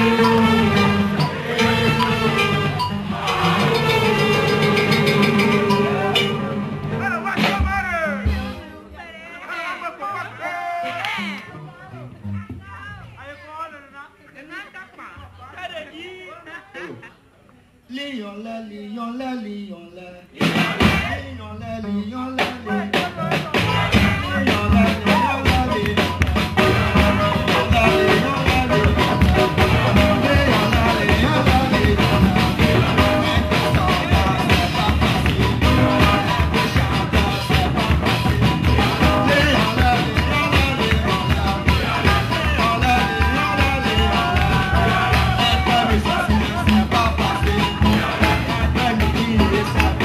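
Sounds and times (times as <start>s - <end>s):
drum kit beat: 0.0s - 8.7s, 20.4s - 21.2s, 22.4s - 50.0s
guitar: 0.0s - 9.0s, 21.8s - 50.0s
man singing into a microphone: 17.9s - 50.0s.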